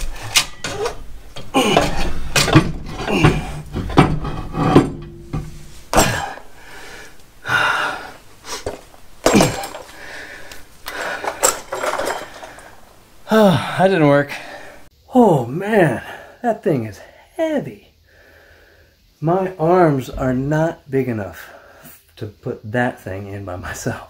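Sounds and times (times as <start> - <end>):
metal clunks and scrapes: 0.0 - 6.5, 10.9 - 12.8
man straining breaths: 0.0 - 14.9, 18.0 - 19.0.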